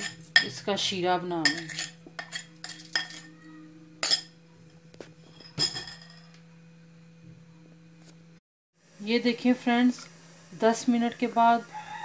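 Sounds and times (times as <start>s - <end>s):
glass bowl clinking on metal pot: 1.4s - 3.3s, 4.0s - 4.4s.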